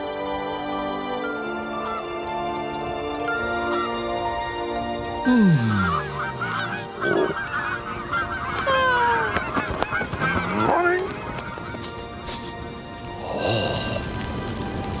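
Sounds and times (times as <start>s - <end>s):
music: 0.0s - 15.0s
cartoon birds honking and squawking: 5.5s - 11.8s.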